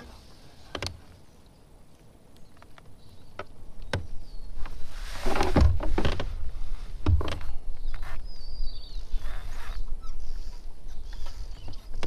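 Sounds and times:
clicks and knocks in kayak: 0:00.7 - 0:01.0, 0:02.4 - 0:06.4, 0:07.0 - 0:08.0
bird chirp: 0:01.2 - 0:04.9, 0:07.6 - 0:12.0.

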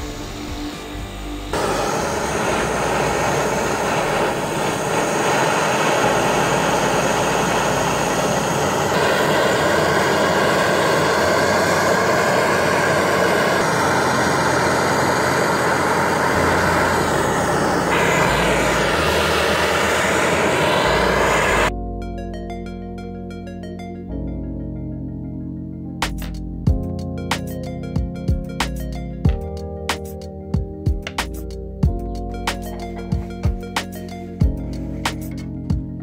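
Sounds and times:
music: 0:00.0 - 0:03.8, 0:16.4 - 0:36.0
blowtorch flame hissing: 0:00.0 - 0:21.7.

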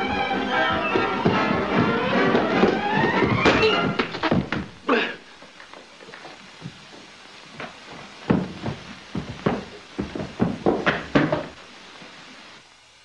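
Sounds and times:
football thudding: 0:08.3 - 0:11.6.

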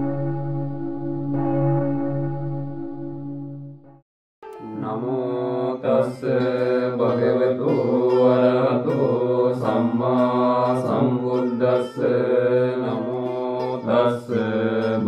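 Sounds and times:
person chanting: 0:04.5 - 0:15.0.

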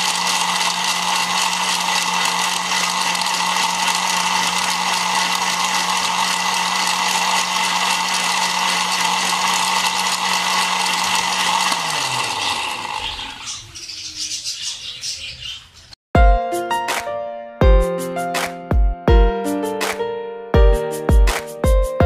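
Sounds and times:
electric blender running: 0:00.0 - 0:14.1.

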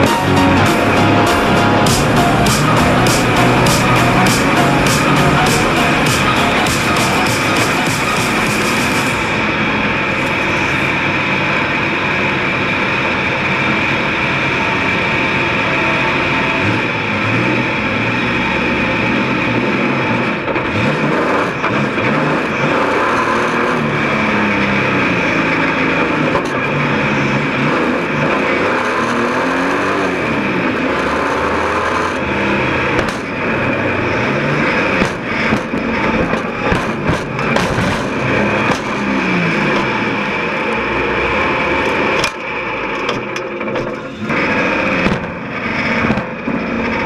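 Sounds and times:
heavy car crash: 0:00.0 - 0:17.0, 0:32.1 - 0:47.0
cars knocking and banging together: 0:00.0 - 0:47.0
race car engine revving: 0:00.0 - 0:47.0.

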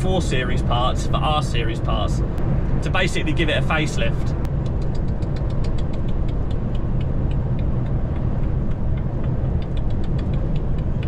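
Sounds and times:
truck engine and road rumble: 0:00.0 - 0:11.0
faint even ticking: 0:04.4 - 0:11.0.

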